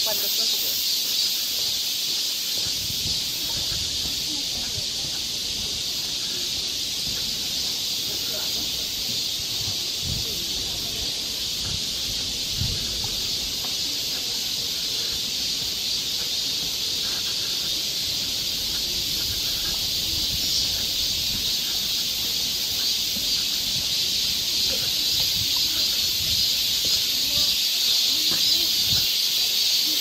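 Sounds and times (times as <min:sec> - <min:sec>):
cicadas buzzing: 0:00.0 - 0:30.0.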